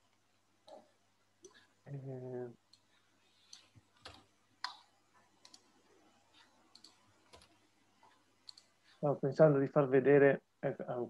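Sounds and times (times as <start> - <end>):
faint computer clicks: 3.5 - 5.7, 6.4 - 7.6, 8.4 - 8.7.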